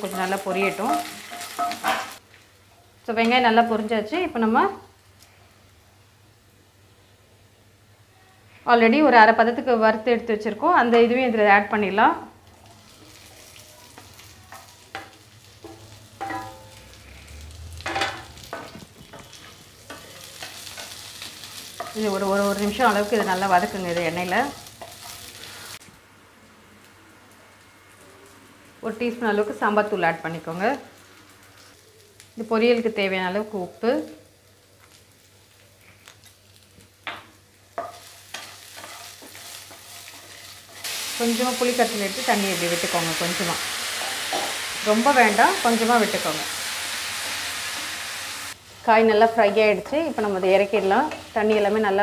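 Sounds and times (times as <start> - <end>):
food sizzling in hot oil: 0.0 - 2.2, 11.6 - 25.8, 26.8 - 52.0
metal spatula scraping and clattering: 0.5 - 2.2, 14.5 - 16.8, 37.8 - 40.9
spatula scraping a pan: 37.8 - 41.1.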